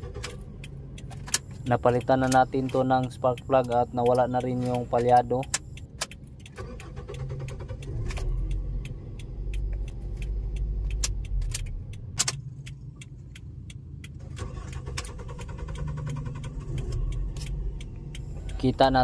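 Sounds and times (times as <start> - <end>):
starter cranking engine: 0.0 - 3.1, 6.4 - 8.8, 14.2 - 17.8
car engine running: 0.0 - 19.0.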